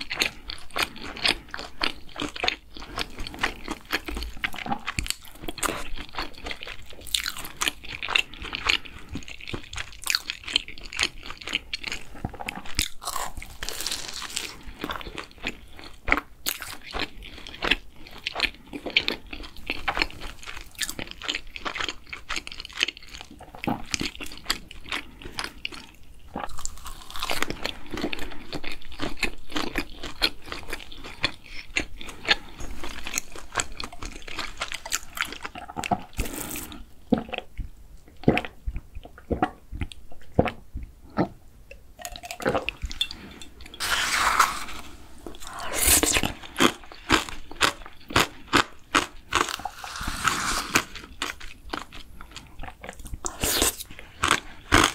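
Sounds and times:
crunchy chewing: 0:00.0 - 0:37.6, 0:42.2 - 0:54.9.

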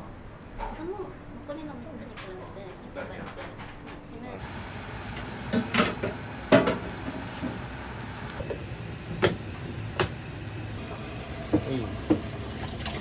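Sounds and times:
kitchen utensils clinking: 0:05.5 - 0:07.6.

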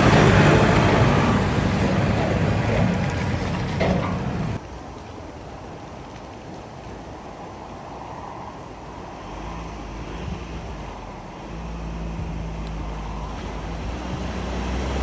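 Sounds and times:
vehicle engine running: 0:00.0 - 0:04.6
water rushing and splashing: 0:00.0 - 0:15.0
wind: 0:00.0 - 0:15.0.

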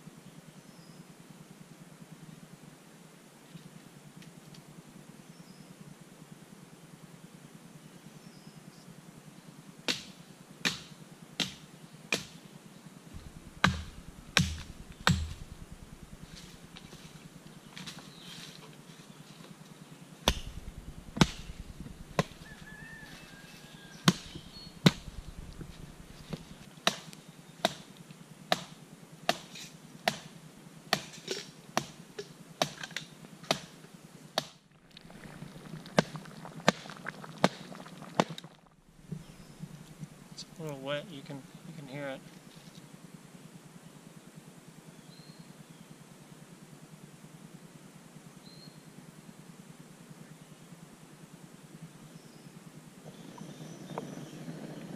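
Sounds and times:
hatchet chopping firewood: 0:09.9 - 0:12.4, 0:13.2 - 0:18.0, 0:20.3 - 0:22.7, 0:24.1 - 0:27.9, 0:28.5 - 0:30.3, 0:30.9 - 0:33.8.

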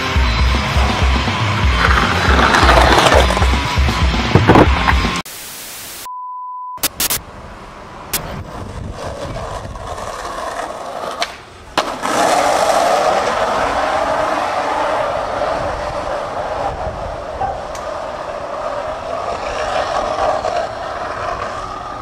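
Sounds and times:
skateboard wheels rolling on asphalt: 0:00.0 - 0:05.2, 0:07.3 - 0:22.0
skateboard clacks: 0:00.8 - 0:05.2, 0:08.2 - 0:22.0
static hiss: 0:05.2 - 0:06.1, 0:06.8 - 0:07.2
short steady beep: 0:06.0 - 0:07.2.

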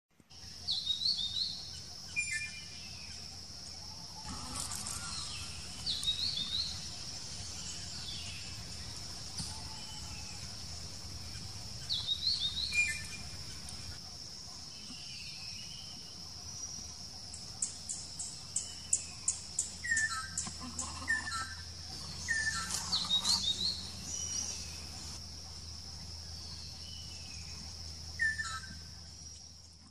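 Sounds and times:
high insect buzz: 0:04.1 - 0:14.0
bird whistling calls: 0:28.2 - 0:28.7.

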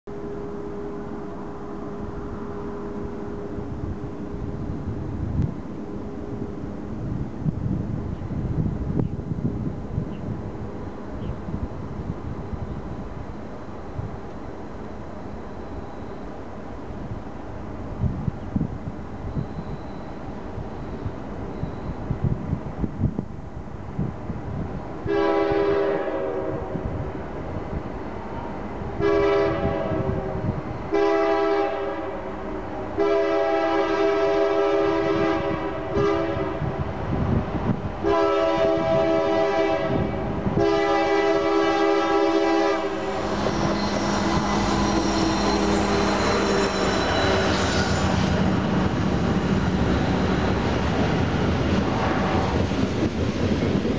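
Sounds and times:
diesel locomotive engines passing: 0:00.1 - 0:53.9
locomotive air horn blasts: 0:25.1 - 0:26.9, 0:29.0 - 0:36.8, 0:38.0 - 0:48.5.

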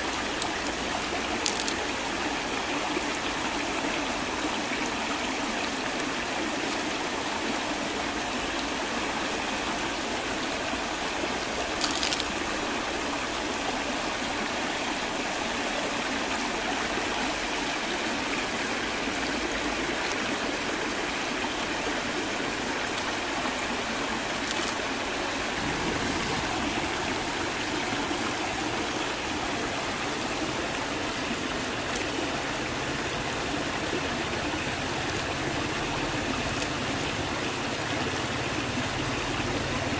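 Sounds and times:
stream rushing over stones: 0:00.0 - 0:39.9.

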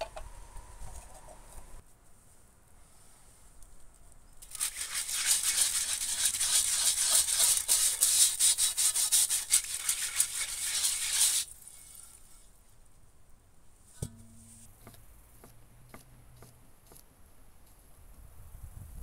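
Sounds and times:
brush scrubbing a wok: 0:04.4 - 0:12.4.

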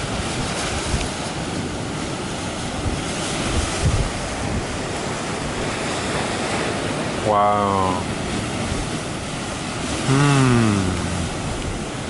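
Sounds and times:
wind gusting on microphone: 0:00.0 - 0:07.3
surf breaking against cliff: 0:00.0 - 0:12.0.

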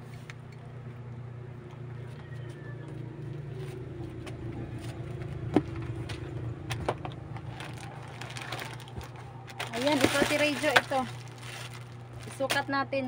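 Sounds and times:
steady low hum: 0:00.0 - 0:13.0
clothes rustling: 0:07.4 - 0:12.8.

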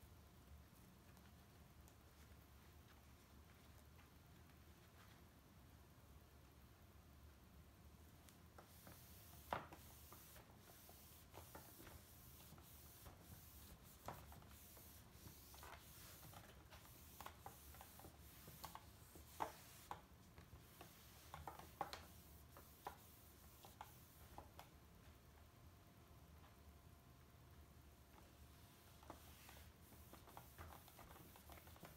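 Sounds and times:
cloth rubbing a screen: 0:08.7 - 0:20.0, 0:28.7 - 0:31.9.

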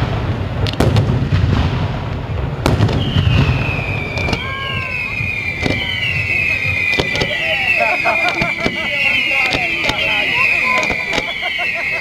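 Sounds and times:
fireworks bangs: 0:00.0 - 0:12.0
spark fountain spraying: 0:02.8 - 0:12.0
high falling whistle: 0:03.0 - 0:12.0.

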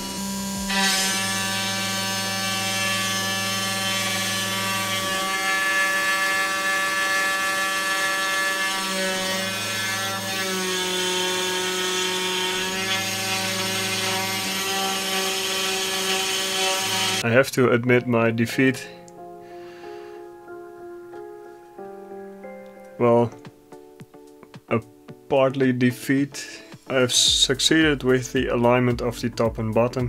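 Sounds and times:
stepper motors whining: 0:00.0 - 0:04.2
spindle motor cutting: 0:00.0 - 0:17.2.

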